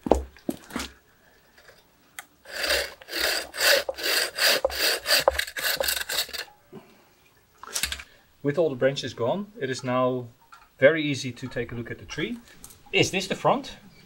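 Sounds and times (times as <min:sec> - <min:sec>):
bow saw cutting wood: 0:02.5 - 0:06.5.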